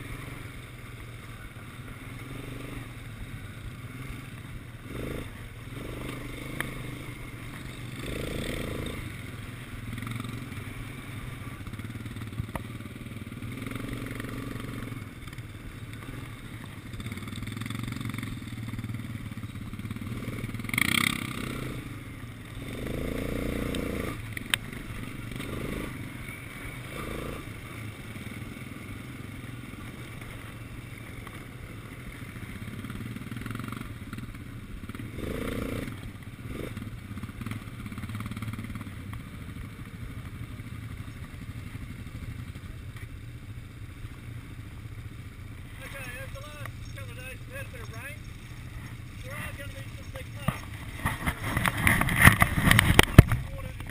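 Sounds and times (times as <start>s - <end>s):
quad bike engine revving: 0.0s - 43.2s, 44.0s - 53.9s.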